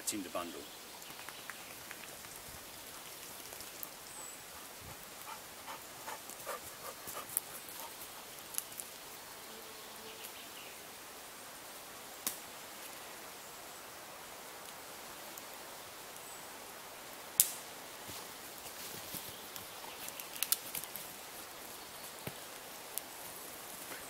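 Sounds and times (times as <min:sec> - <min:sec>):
steady hiss: 0:00.0 - 0:24.0
dry grass rustling and ticking: 0:00.9 - 0:09.1, 0:17.4 - 0:24.0
dog panting: 0:04.2 - 0:08.2.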